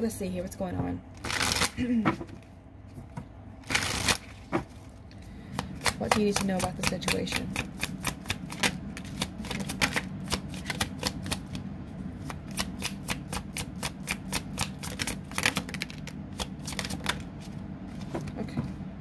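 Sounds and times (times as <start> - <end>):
cards being shuffled by hand: 1.2 - 11.6, 12.2 - 18.8.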